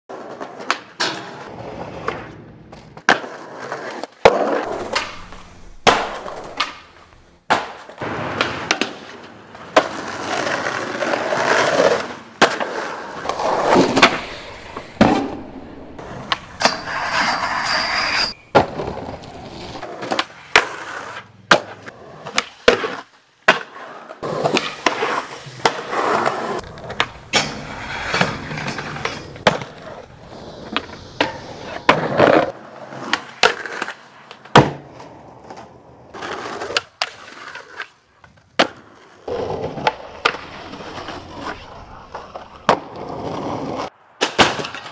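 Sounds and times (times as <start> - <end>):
skateboard pops and landings: 0.1 - 17.3, 18.5 - 44.9
skateboard wheels rolling on concrete: 0.1 - 44.9
skateboard grinding metal rail: 3.1 - 7.3, 7.9 - 21.2, 23.8 - 34.0.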